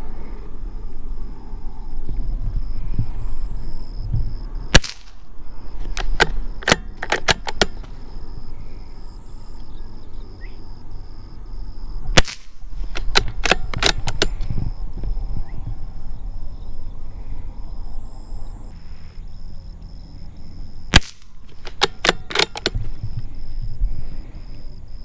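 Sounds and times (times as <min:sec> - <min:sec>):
rifle shots: 0:04.7 - 0:07.9, 0:12.2 - 0:14.4, 0:20.9 - 0:22.9
rifle bolt clicking: 0:05.8 - 0:07.9, 0:12.2 - 0:14.4, 0:21.0 - 0:22.8.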